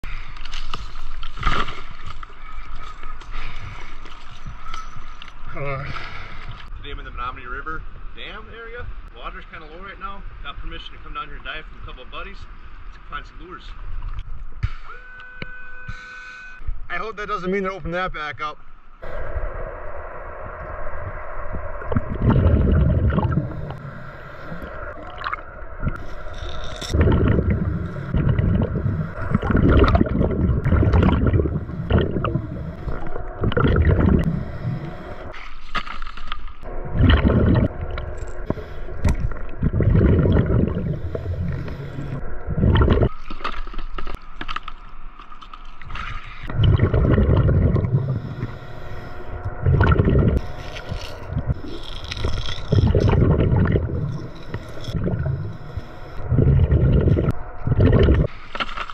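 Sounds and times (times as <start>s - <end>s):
faint steady hum: 0.1s - 58.9s
underwater exhaust bubbles gurgling: 19.0s - 26.2s, 26.9s - 35.4s, 36.6s - 44.1s, 46.4s - 58.3s.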